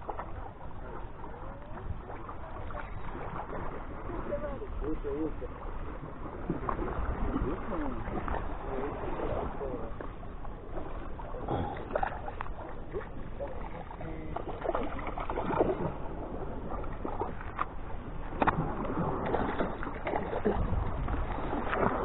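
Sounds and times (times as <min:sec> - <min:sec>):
small waves sloshing against pier: 0:00.0 - 0:22.0
wind rumble on microphone: 0:00.0 - 0:22.0
splash in water: 0:13.8 - 0:16.0, 0:18.3 - 0:22.0.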